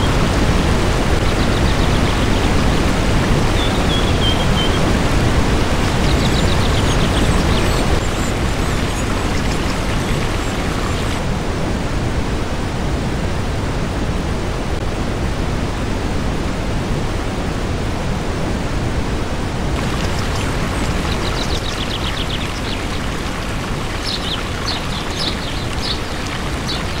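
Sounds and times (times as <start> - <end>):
waterfall rushing into pool: 0.0 - 11.3, 19.7 - 27.0.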